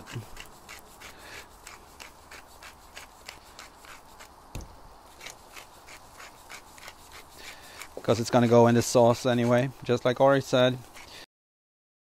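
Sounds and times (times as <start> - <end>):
low thump: 4.5 - 4.8.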